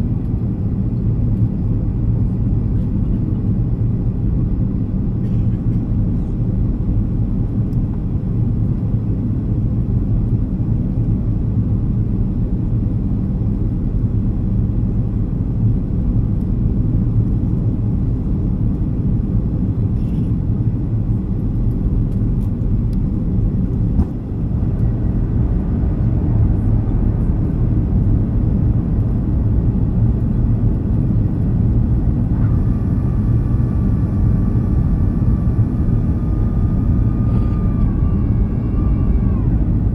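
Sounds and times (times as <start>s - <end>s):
airplane cabin engine roar: 0.0s - 39.9s
faint high whine: 32.0s - 39.9s.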